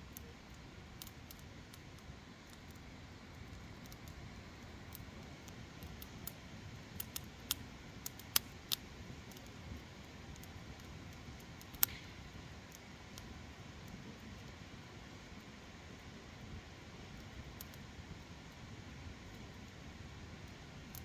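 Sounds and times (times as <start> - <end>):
wood fire crackling: 0.0 - 21.0.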